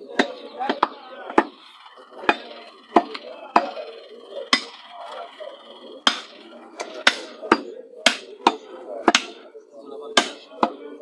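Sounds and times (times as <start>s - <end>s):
cleavers chopping meat on wood: 0.1s - 1.6s, 2.2s - 3.8s, 4.5s - 4.8s, 6.1s - 9.5s, 10.1s - 10.8s.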